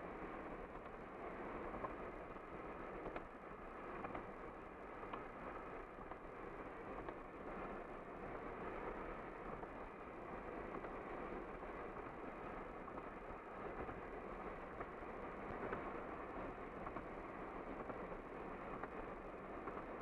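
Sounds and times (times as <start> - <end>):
tyre and wind noise inside car: 0.2 - 20.0
faint ticks: 1.7 - 2.4, 3.0 - 3.3, 4.0 - 4.4, 5.0 - 5.4, 6.9 - 7.3.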